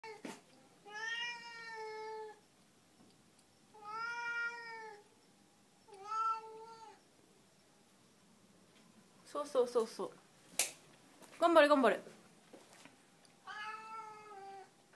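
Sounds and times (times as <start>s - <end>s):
cat meowing: 0.8s - 2.4s, 3.7s - 5.1s, 5.9s - 7.0s, 13.4s - 14.8s.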